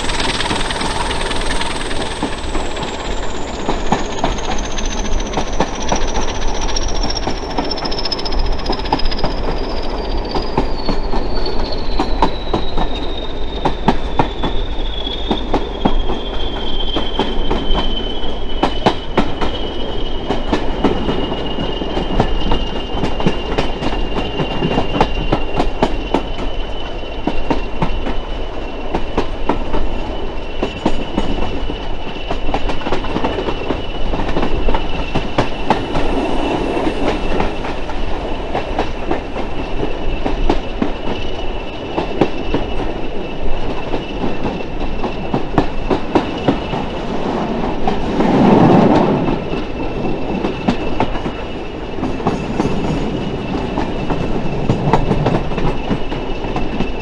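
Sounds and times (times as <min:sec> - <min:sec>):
high whine: 0:00.0 - 0:06.2, 0:34.6 - 0:40.4
train rumbling: 0:00.0 - 0:57.0.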